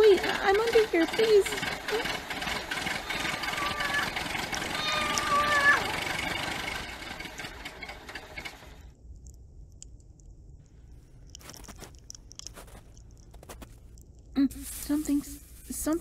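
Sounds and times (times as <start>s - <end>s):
car engine running: 0.0s - 8.9s.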